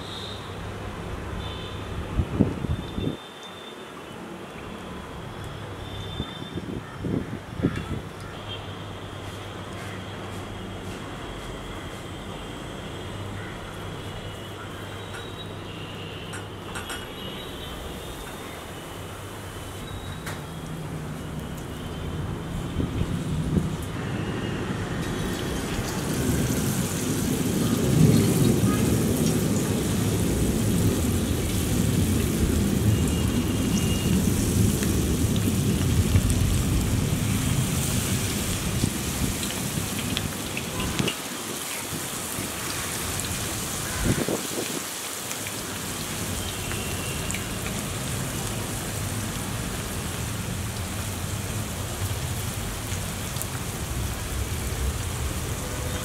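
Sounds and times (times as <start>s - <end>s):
food deep-frying in hot oil: 18.0s - 56.0s.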